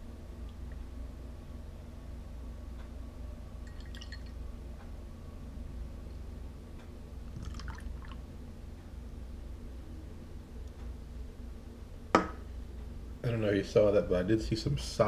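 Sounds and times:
beer pouring into glass: 0:03.7 - 0:04.4, 0:07.3 - 0:08.2.

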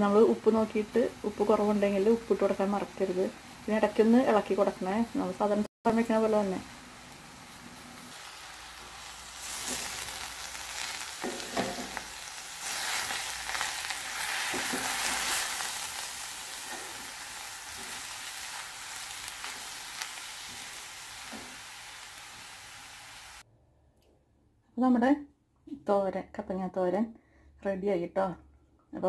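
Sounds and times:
food sizzling in oil: 0:00.0 - 0:23.4
spatula scraping a pan: 0:10.8 - 0:15.9.

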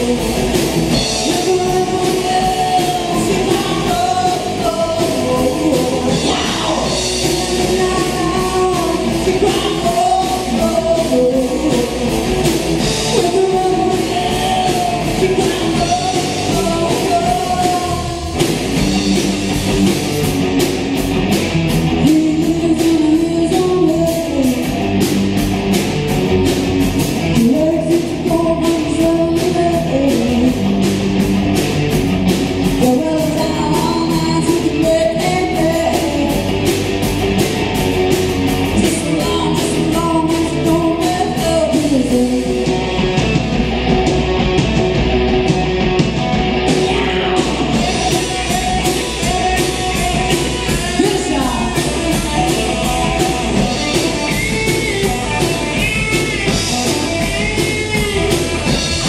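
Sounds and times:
lead vocal singing: 0:00.0 - 0:18.5, 0:21.9 - 0:24.8, 0:27.2 - 0:30.8, 0:32.7 - 0:36.8, 0:38.6 - 0:43.3, 0:46.7 - 0:55.9
band playing rock song: 0:00.0 - 0:59.0
guitar: 0:00.0 - 0:59.0.

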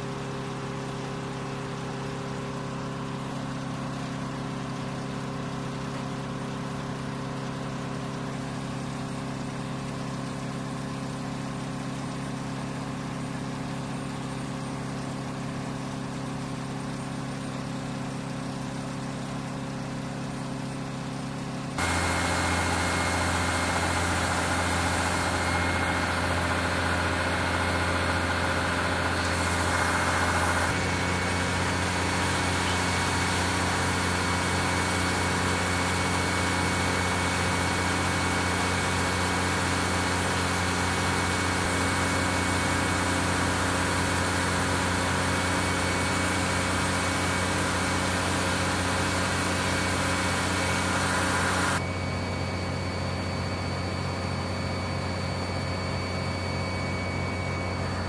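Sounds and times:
truck engine idling: 0:21.8 - 0:51.9.

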